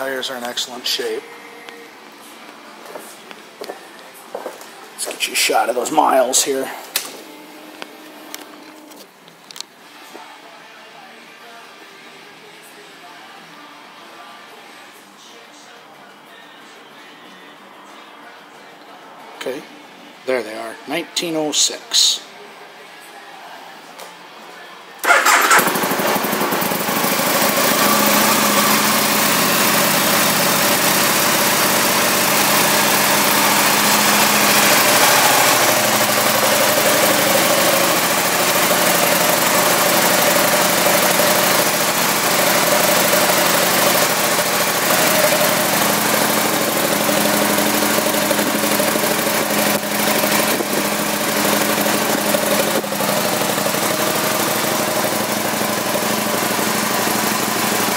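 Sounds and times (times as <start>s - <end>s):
motorcycle engine starting and idling: 25.0s - 57.9s.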